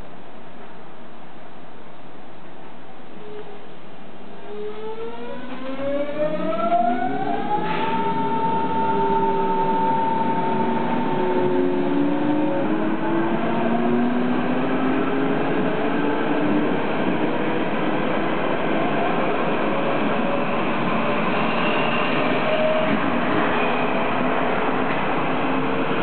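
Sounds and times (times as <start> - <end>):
train wheels on rails: 7.0 - 26.0.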